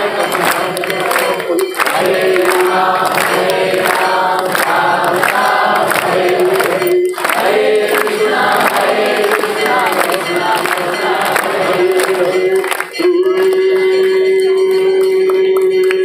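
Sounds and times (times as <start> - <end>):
group singing a chant: 0.0 - 14.7.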